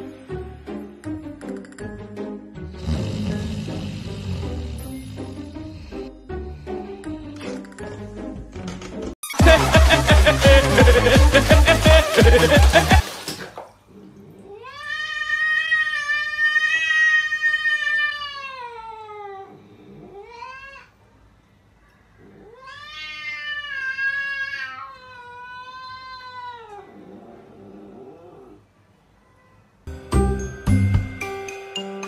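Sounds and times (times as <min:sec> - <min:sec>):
cat yowling: 0:14.5 - 0:20.9, 0:22.3 - 0:27.0.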